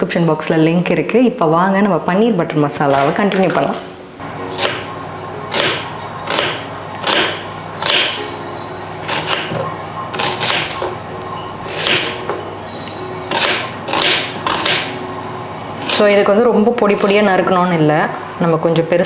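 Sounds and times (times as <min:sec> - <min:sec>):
knife chopping onion on board: 0:04.5 - 0:04.8, 0:05.5 - 0:08.2, 0:09.0 - 0:10.9, 0:11.7 - 0:12.2, 0:13.3 - 0:14.9.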